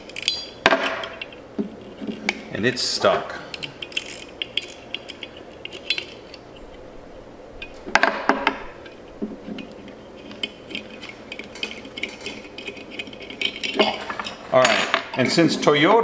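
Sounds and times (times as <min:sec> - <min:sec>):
small metal parts clinking: 0:00.0 - 0:01.4, 0:03.0 - 0:06.4, 0:09.6 - 0:15.5.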